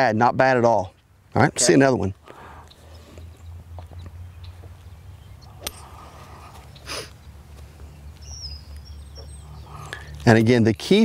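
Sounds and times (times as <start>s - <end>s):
bird chirp: 0.7s - 1.5s, 2.2s - 11.0s
steady low hum: 2.1s - 10.3s.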